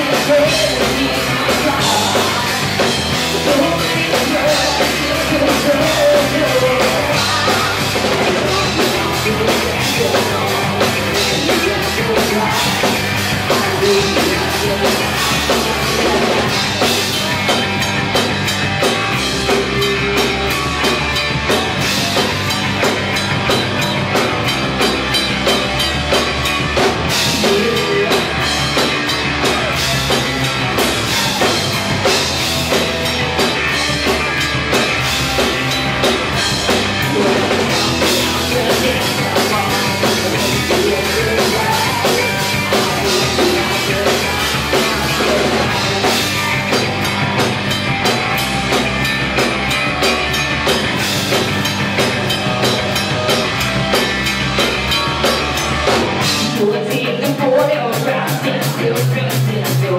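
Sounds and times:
bass guitar: 0:00.0 - 0:59.9
drum kit beat: 0:00.0 - 0:59.9
electric guitars: 0:00.0 - 0:59.9.

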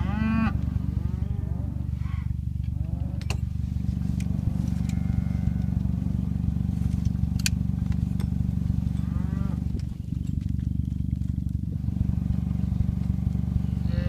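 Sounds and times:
cattle mooing: 0:00.0 - 0:03.4, 0:04.5 - 0:06.0, 0:08.9 - 0:09.8, 0:13.8 - 0:14.0
steady low rumble: 0:00.0 - 0:14.0.

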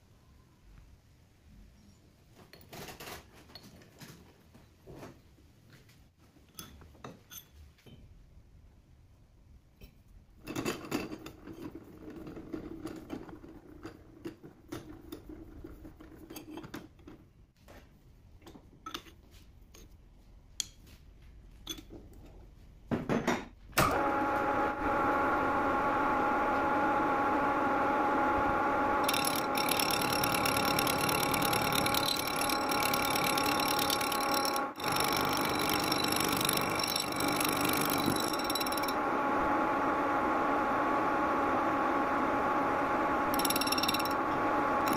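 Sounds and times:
metal lathe whining: 0:23.9 - 0:44.9.

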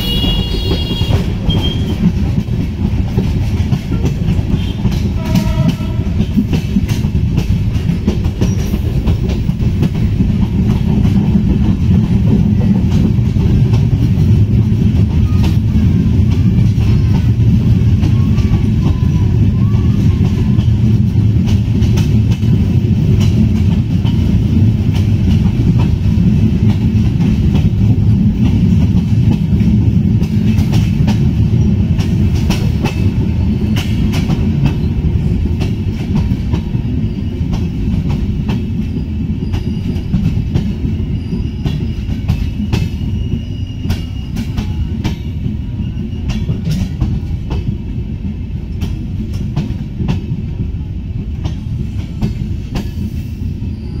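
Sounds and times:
train wheels rumbling on rails: 0:00.0 - 0:54.0
faint wheel squeal: 0:39.4 - 0:40.1, 0:41.0 - 0:44.9, 0:53.1 - 0:54.0.

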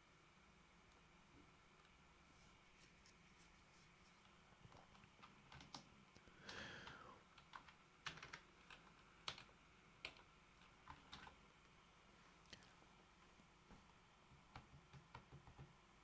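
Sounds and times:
keyboard keys clicking: 0:04.7 - 0:05.9, 0:06.5 - 0:11.4.

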